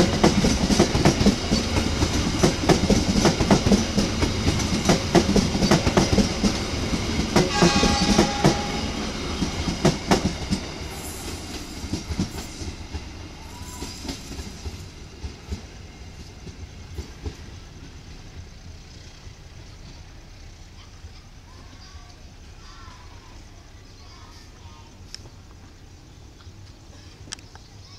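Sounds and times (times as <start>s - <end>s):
train wheels clattering over rail joints: 0.0s - 20.1s
short high tone: 7.5s - 9.1s.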